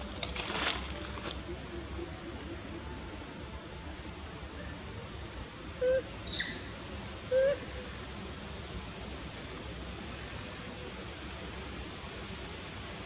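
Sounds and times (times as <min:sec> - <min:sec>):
insects droning: 0:00.0 - 0:13.0
short calls: 0:05.8 - 0:07.8.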